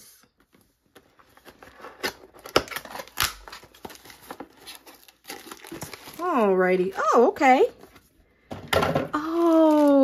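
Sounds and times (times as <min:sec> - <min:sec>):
plastic wrap rustling: 0:01.1 - 0:08.2, 0:09.1 - 0:10.0.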